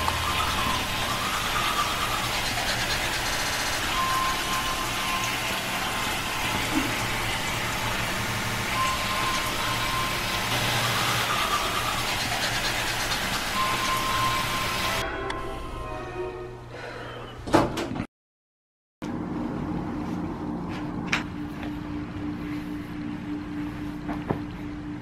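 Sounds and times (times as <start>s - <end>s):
thin high tone: 0.0s - 17.3s.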